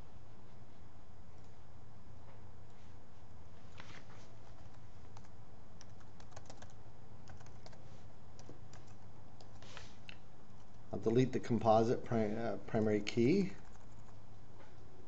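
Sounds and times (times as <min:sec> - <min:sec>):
steady low hum: 0:00.0 - 0:15.0
keyboard typing: 0:04.5 - 0:09.6, 0:13.5 - 0:14.2.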